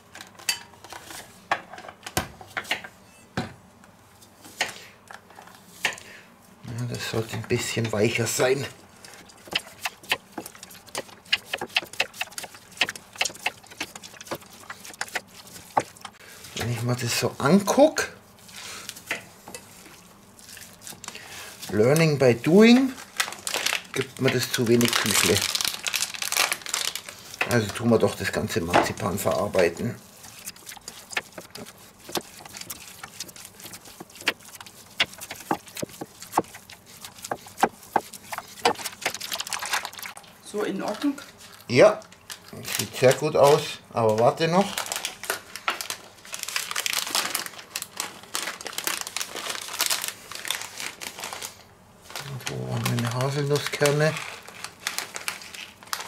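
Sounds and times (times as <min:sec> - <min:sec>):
hands kneading sticky dough: 0:06.9 - 0:17.8, 0:23.8 - 0:40.2.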